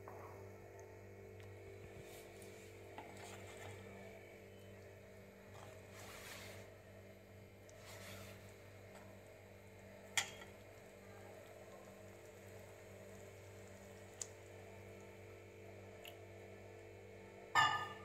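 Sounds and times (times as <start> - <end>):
low steady hum: 0.0 - 18.0
metal ladle clinking on pot: 10.2 - 10.5, 17.6 - 18.0.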